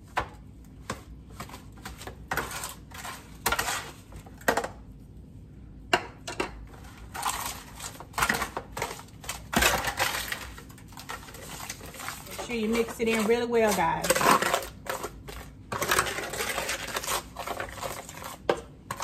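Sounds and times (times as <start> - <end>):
foil crinkling: 7.1 - 18.4
spoon scraping: 10.0 - 19.0.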